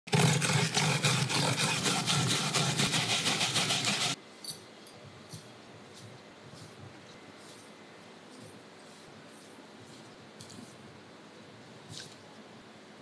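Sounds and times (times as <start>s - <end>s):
garlic grated on plastic grater: 0.1s - 4.2s.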